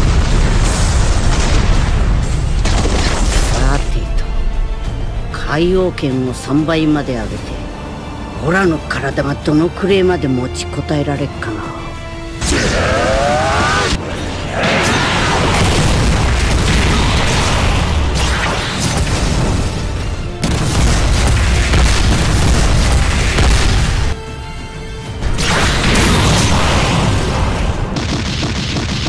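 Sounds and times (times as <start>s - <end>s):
booming impacts and blasts: 0.0s - 4.8s, 12.4s - 24.2s, 25.2s - 29.0s
dramatic background music: 0.0s - 29.0s.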